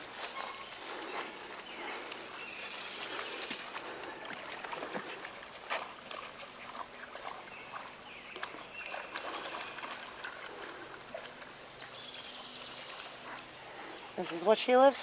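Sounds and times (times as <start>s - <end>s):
dog splashing through water: 3.0s - 11.5s.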